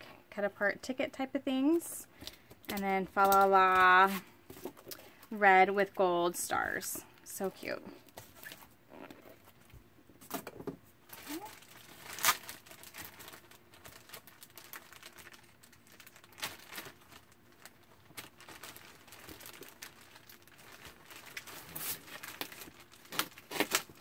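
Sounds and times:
paper rustling and crinkling: 11.1s - 24.0s.

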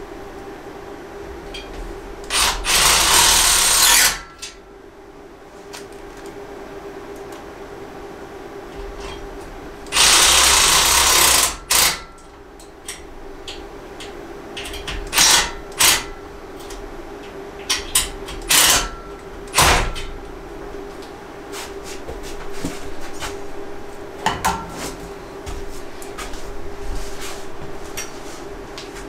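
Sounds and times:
cordless drill driving screws: 2.3s - 4.2s, 9.9s - 12.0s.

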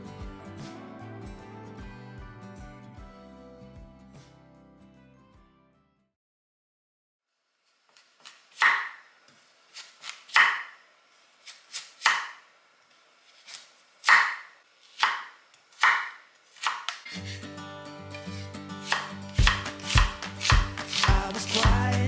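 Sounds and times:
knife chopping on cutting board: 8.2s - 9.0s, 9.7s - 10.8s, 11.4s - 12.4s, 13.4s - 17.4s, 18.2s - 22.0s.

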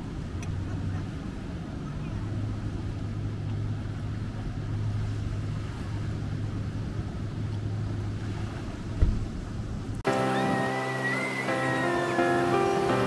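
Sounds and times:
thump: 9.0s - 9.3s.

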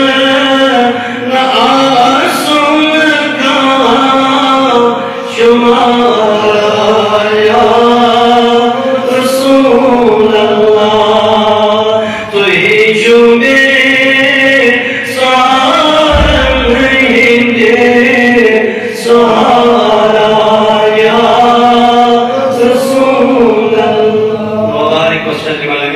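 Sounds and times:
man singing into microphone: 0.0s - 25.9s
low thump: 16.1s - 17.7s.

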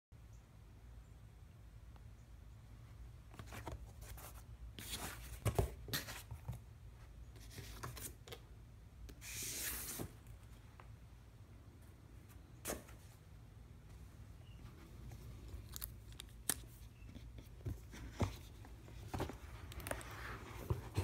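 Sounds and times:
cardboard rustling and scraping: 3.3s - 6.6s, 16.6s - 21.0s
cardboard scraping slide: 9.2s - 10.2s.

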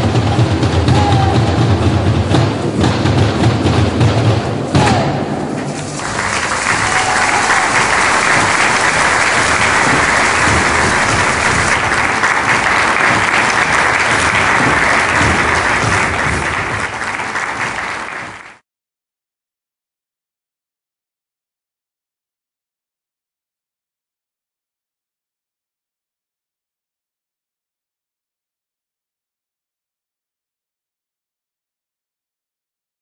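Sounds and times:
percussion on buckets and barrels: 0.0s - 18.4s
audience applause: 5.7s - 18.6s.

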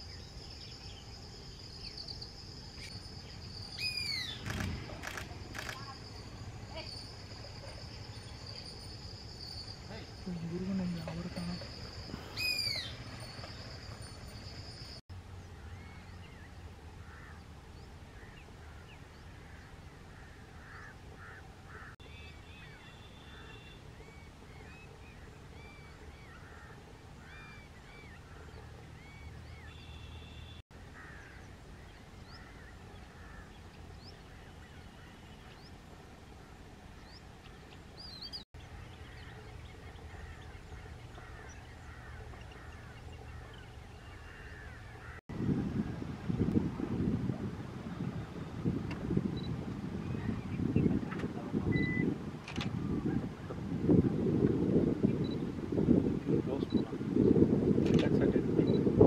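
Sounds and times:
small birds chirping: 0.0s - 35.9s.

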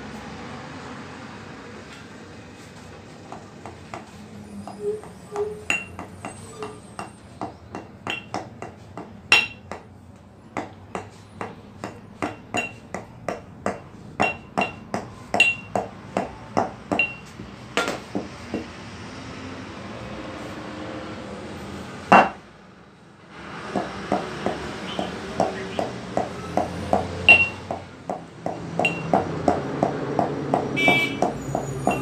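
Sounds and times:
hammer tapping metal: 5.4s - 9.9s, 10.6s - 18.7s, 23.8s - 32.0s.

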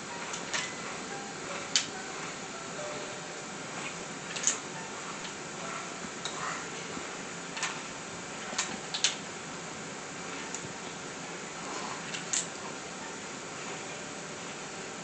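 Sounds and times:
crib toys clicking and rattling: 0.1s - 2.4s, 3.8s - 9.2s, 12.0s - 12.7s.

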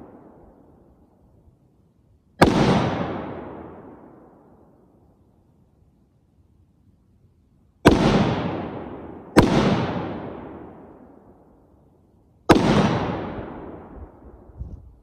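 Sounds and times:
rifle shots with echo: 2.4s - 4.4s, 7.8s - 11.2s, 12.5s - 14.5s.

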